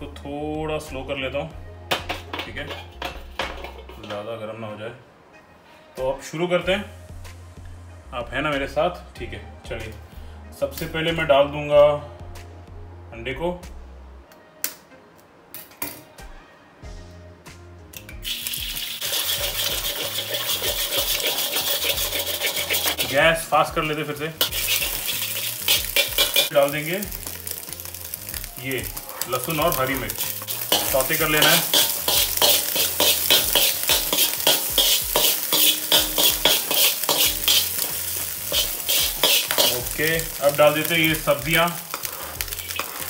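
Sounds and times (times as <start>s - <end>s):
background music: 0.0s - 43.0s
metal spatula scraping a wok: 1.9s - 4.1s, 18.3s - 23.5s, 24.4s - 43.0s
egg sizzling in hot oil: 18.2s - 23.5s, 24.4s - 43.0s.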